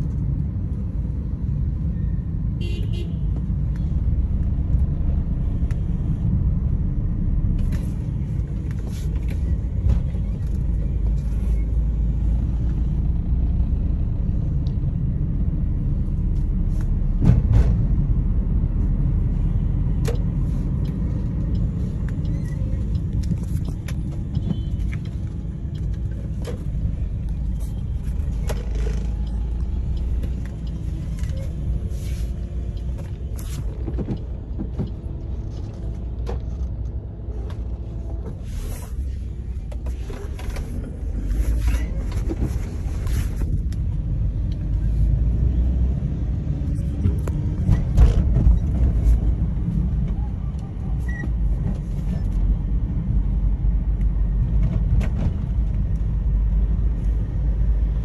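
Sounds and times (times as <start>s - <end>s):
car engine and tyres rumble: 0.0s - 58.0s.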